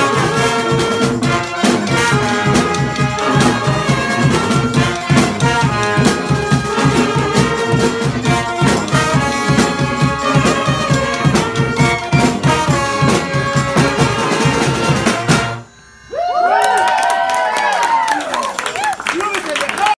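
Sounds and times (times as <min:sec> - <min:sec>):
brass band playing: 0:00.0 - 0:15.8
crowd whooping and cheering: 0:16.1 - 0:19.9.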